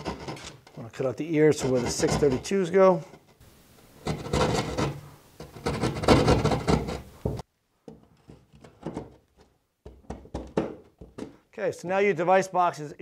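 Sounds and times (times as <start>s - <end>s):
blade scraping drywall: 0.0s - 3.2s, 4.0s - 7.4s.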